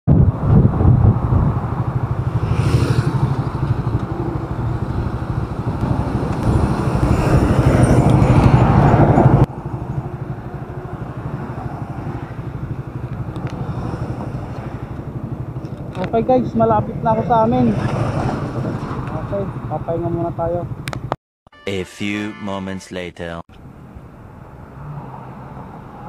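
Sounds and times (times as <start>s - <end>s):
motorcycle engine idling: 9.5s - 17.2s.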